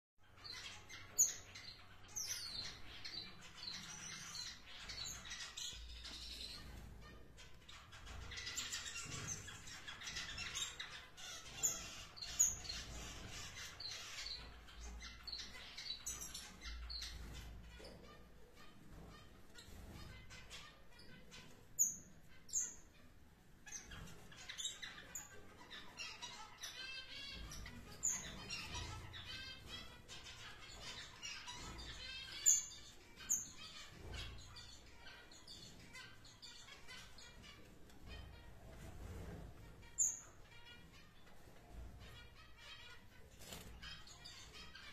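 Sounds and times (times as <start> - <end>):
finches chirping: 0.2 - 44.9.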